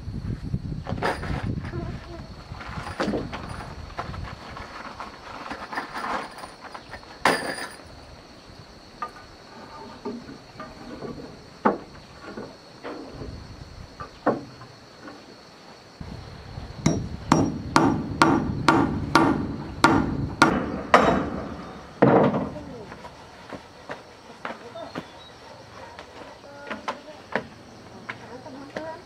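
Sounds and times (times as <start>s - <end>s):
hammer striking: 16.8s - 22.4s.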